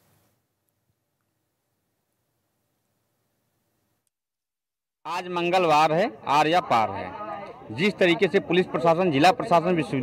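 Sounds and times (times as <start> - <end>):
faint background hiss: 0.0 - 4.1.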